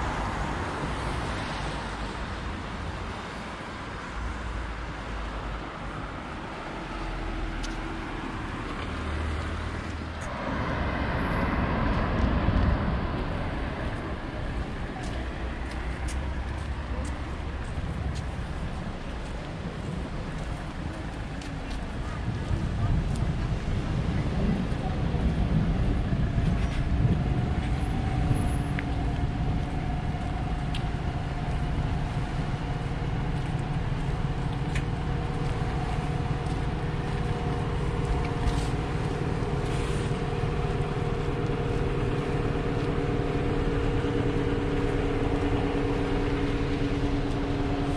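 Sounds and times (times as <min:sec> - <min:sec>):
bus driving past: 0:00.0 - 0:47.9
road traffic passing: 0:00.0 - 0:47.9.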